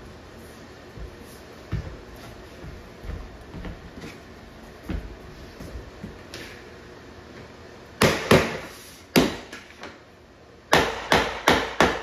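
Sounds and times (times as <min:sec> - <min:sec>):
hammer knocking block: 0:10.7 - 0:12.0.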